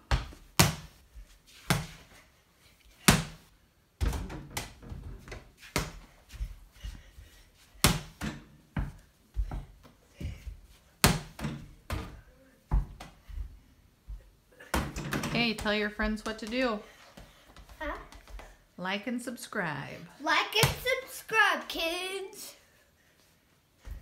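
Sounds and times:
ball bouncing on hard floor: 0:00.1 - 0:00.9, 0:04.0 - 0:06.1, 0:07.8 - 0:13.5, 0:14.1 - 0:18.6.

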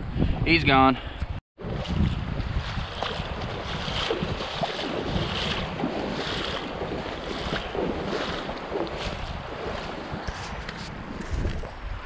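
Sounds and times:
wind buffeting microphone: 0:00.0 - 0:12.0
person wading splashing in river: 0:01.6 - 0:10.8.

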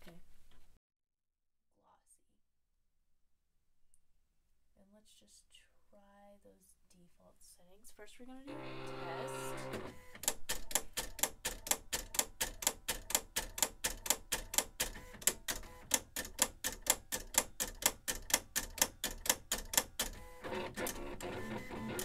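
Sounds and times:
motor whir: 0:08.5 - 0:10.1
vinyl cutter clicking: 0:08.5 - 0:22.0.

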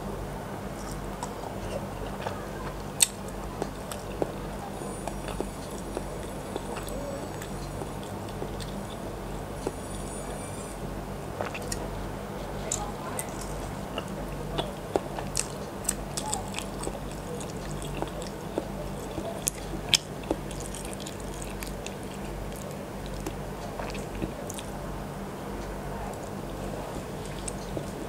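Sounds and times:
steady low hum: 0:00.0 - 0:28.0
biting and chewing: 0:00.6 - 0:24.8, 0:25.6 - 0:28.0.

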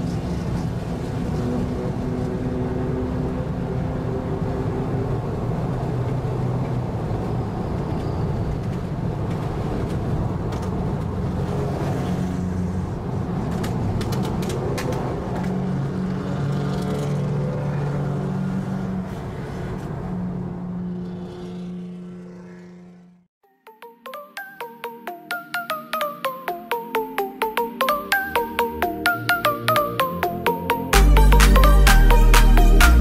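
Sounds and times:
car engines droning: 0:10.1 - 0:23.2.

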